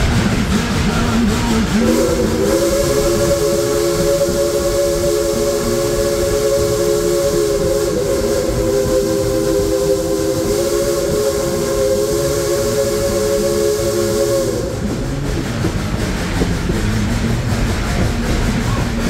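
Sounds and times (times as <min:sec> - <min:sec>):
train rumbling and rattling on track: 0:00.0 - 0:19.0
steam locomotive chime whistle: 0:01.8 - 0:15.0.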